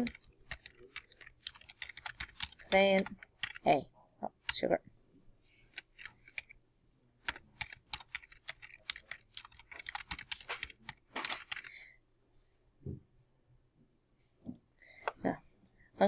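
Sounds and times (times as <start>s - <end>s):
computer keyboard typing: 0.0s - 4.7s, 5.7s - 6.6s, 7.2s - 11.8s.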